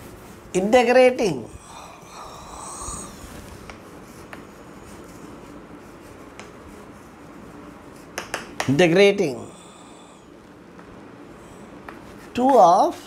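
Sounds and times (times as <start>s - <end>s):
chalk tapping on board: 3.7s - 4.6s, 6.1s - 6.6s, 8.0s - 8.8s, 11.8s - 13.0s.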